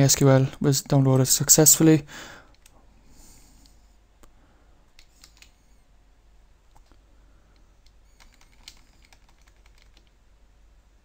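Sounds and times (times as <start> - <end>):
keyboard keystrokes: 7.8 - 10.1.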